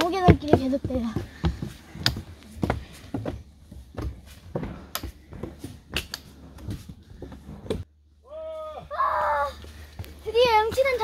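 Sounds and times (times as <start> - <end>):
footsteps on wooden stairs: 0.0 - 7.9, 9.6 - 11.0.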